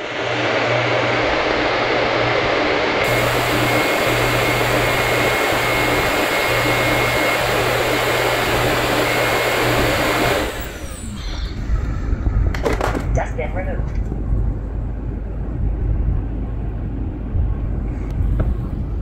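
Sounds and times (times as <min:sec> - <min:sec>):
vacuum fan running with whine: 0:00.0 - 0:19.0.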